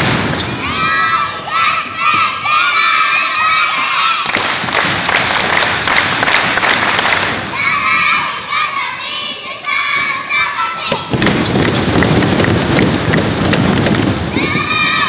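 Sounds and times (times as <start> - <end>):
children shouting: 0.5 - 4.6, 7.3 - 11.2, 14.3 - 15.0
crowd cheering: 0.6 - 15.0.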